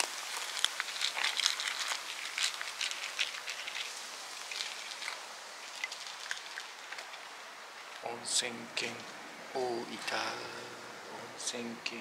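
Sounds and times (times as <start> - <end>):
cats chewing and licking: 0.0 - 8.1
faint hiss: 0.0 - 12.0.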